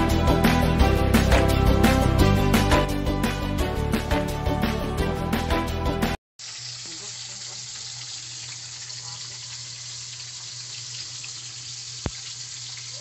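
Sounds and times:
water running from a tap: 6.4 - 13.0.

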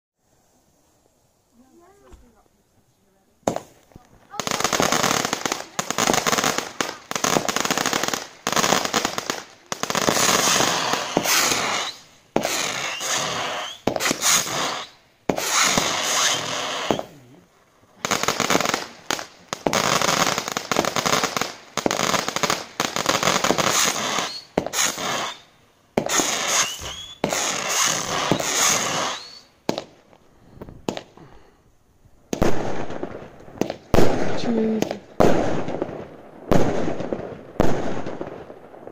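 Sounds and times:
firework barrage bangs: 3.4 - 17.2, 26.0 - 30.0, 32.3 - 38.9.

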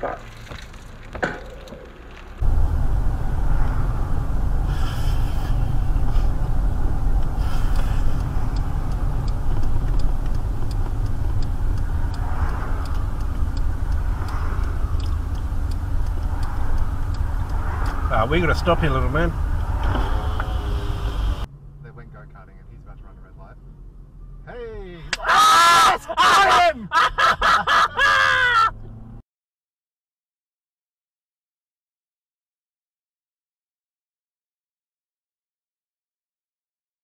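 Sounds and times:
car engine and tyre noise: 0.0 - 29.2
light ticking: 3.9 - 19.8.

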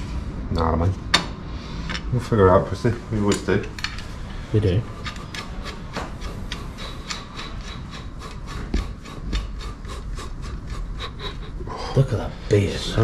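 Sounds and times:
rhythmic clicking and rasping: 1.9 - 12.2.

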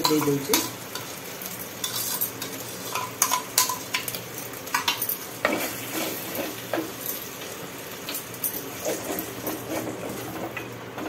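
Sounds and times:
paste sizzling in hot oil: 0.0 - 10.8
spoon and spatula scraping pot: 1.8 - 6.8, 8.5 - 10.7.

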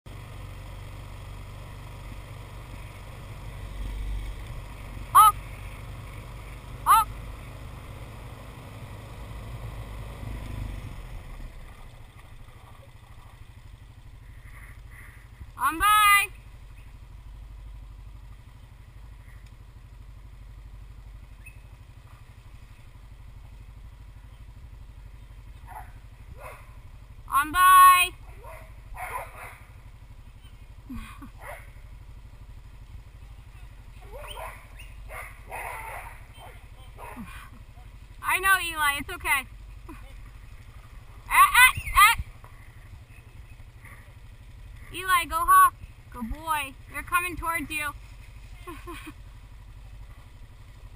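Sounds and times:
atv rumbling on paved road: 0.1 - 50.9
wheels rolling over gravel: 0.2 - 15.4, 16.5 - 27.2, 46.8 - 50.9.

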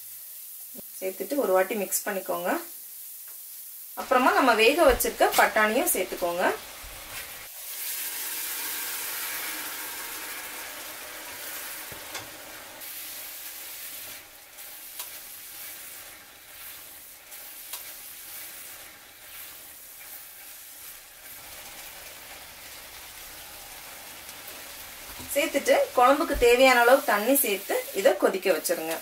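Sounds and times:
food sizzling in a pan: 0.0 - 29.0
wooden spatula stirring: 13.1 - 28.4.

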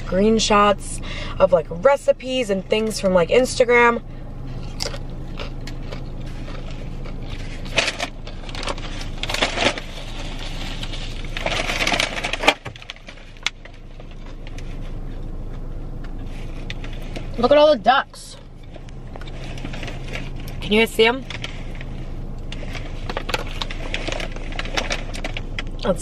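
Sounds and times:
car cabin hum: 0.0 - 26.0
paper bag crinkling: 4.5 - 15.2, 18.5 - 25.8.

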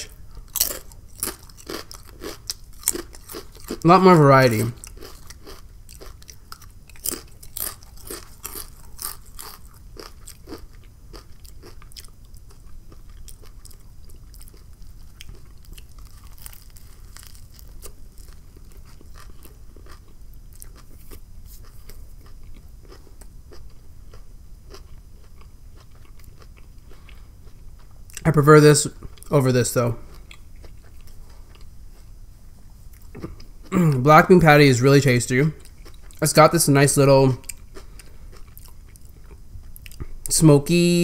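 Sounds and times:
potato chip crunching: 0.0 - 31.7
chewing food: 0.1 - 28.3, 30.0 - 32.1, 32.9 - 33.8, 35.6 - 36.3, 37.4 - 40.2.

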